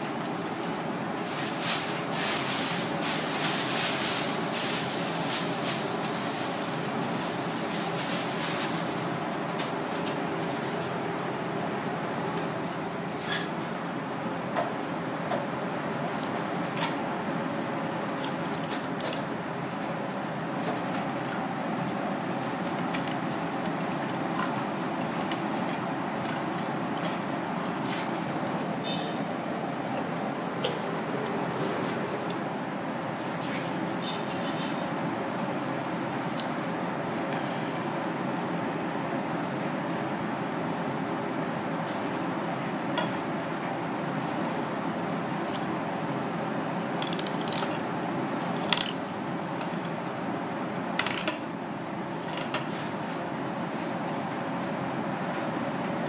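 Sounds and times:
noisy background hum: 0.0 - 56.0.

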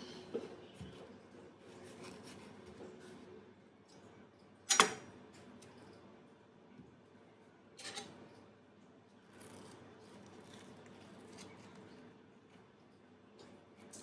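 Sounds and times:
knife scraping avocado: 9.3 - 12.0.

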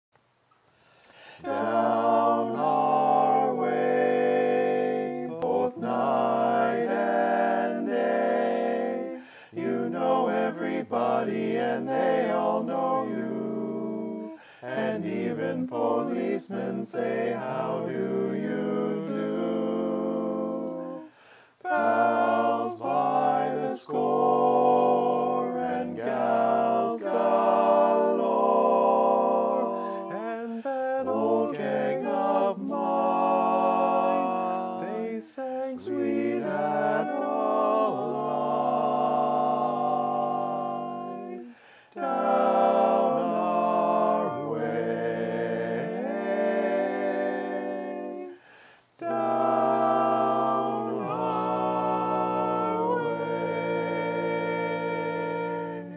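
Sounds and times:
male quartet singing in harmony: 1.2 - 55.9.

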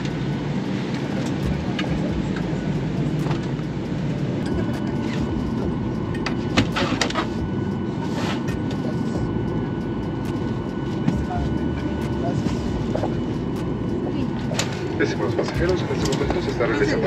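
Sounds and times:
airliner cabin hum: 0.0 - 17.0.

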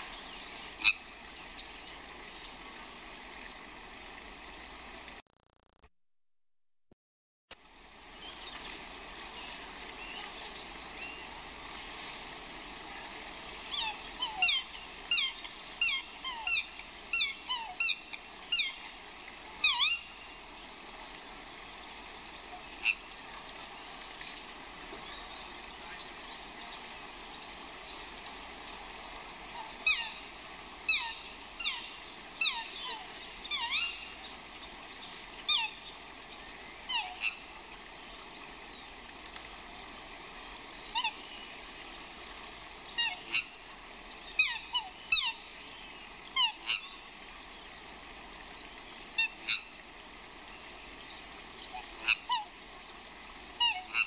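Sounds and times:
rain hissing: 0.0 - 5.2, 7.5 - 53.7
swans squealing calls: 13.7 - 18.8, 19.6 - 20.1, 29.4 - 34.2, 40.9 - 41.2, 43.0 - 43.6, 46.3 - 46.9, 51.6 - 52.6, 53.5 - 54.0.

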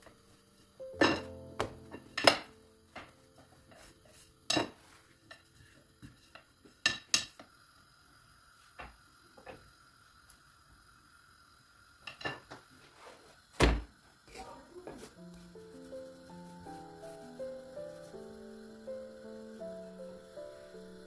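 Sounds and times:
pan knocking on stove: 1.0 - 3.2, 4.5 - 4.8, 6.0 - 7.4.

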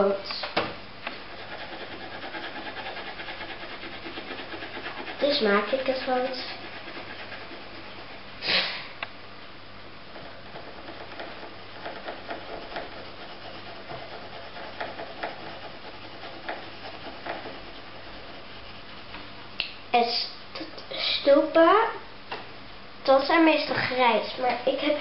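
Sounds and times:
pencil scribbling on paper: 1.3 - 8.2, 10.2 - 19.1.

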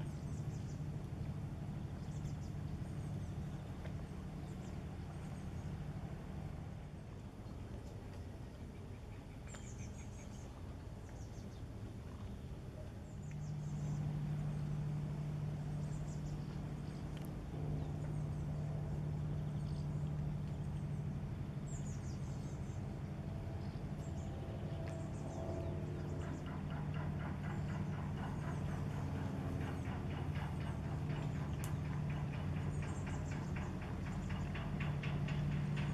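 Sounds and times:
ship diesel engine drone: 0.0 - 9.1, 9.9 - 35.9
small birds chirping: 15.7 - 35.8.

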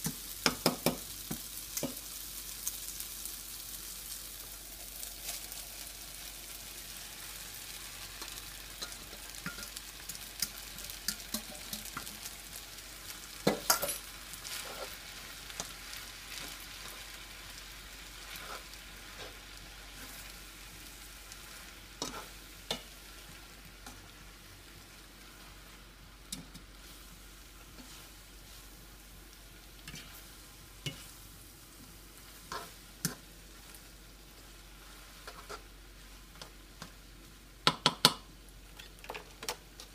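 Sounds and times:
noodles sizzling in a skillet: 0.0 - 39.9
spoon clacking against pan: 8.2 - 12.2, 13.4 - 14.0.

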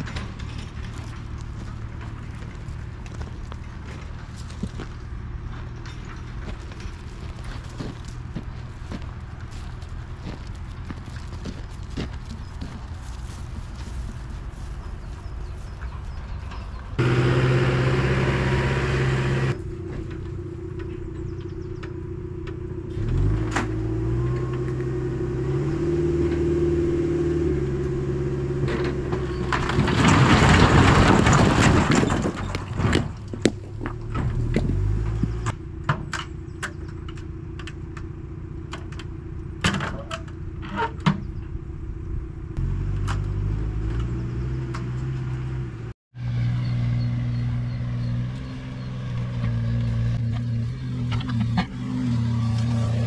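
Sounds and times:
rock knocks and clicks: 0.0 - 14.2, 29.4 - 35.5
diesel engine running: 0.0 - 53.0.

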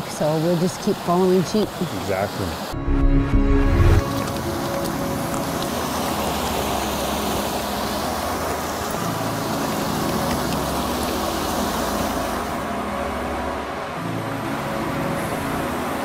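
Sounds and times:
creek rushing over rocks: 3.8 - 16.0.

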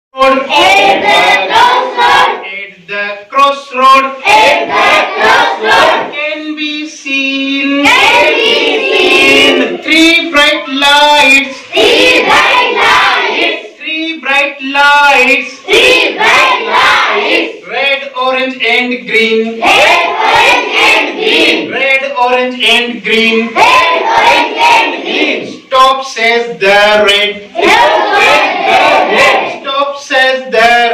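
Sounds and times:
man leading a chant: 0.1 - 1.5, 2.4 - 4.4, 5.5 - 8.0, 9.3 - 11.8, 13.7 - 15.7, 17.6 - 19.8, 21.6 - 23.6, 25.5 - 27.6, 29.1 - 30.9
children singing in chorus: 0.2 - 2.5, 4.2 - 6.1, 7.7 - 9.8, 11.2 - 13.8, 15.2 - 17.6, 19.5 - 21.7, 23.1 - 25.7, 27.5 - 29.7.

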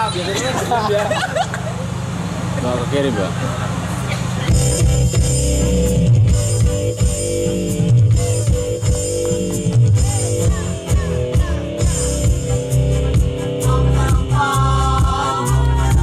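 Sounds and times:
backing music with heavy bass: 3.4 - 16.0
women's choir singing: 13.0 - 16.0.

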